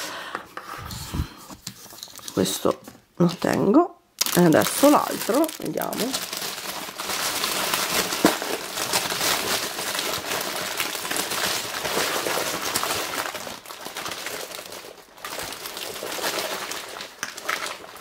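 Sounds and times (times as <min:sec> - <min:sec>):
foil wrapping crinkling: 0:04.2 - 0:18.0.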